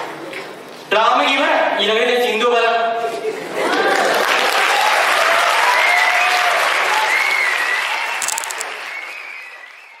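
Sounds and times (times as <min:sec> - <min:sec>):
audience applauding and cheering: 0:03.9 - 0:10.0.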